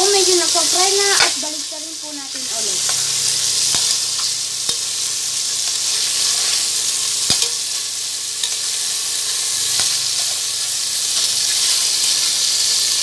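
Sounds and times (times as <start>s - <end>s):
chicken wings sizzling in oil: 0.0s - 13.0s
metal spatula clicking against pot: 7.3s - 7.6s.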